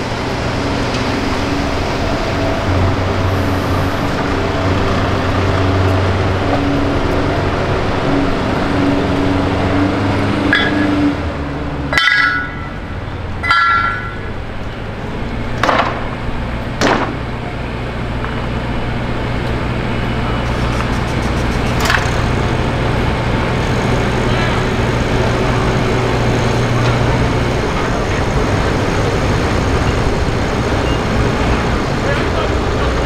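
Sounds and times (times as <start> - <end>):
truck diesel engine running: 0.0 - 33.0
sharp knocks: 15.6 - 16.2, 16.8 - 17.2.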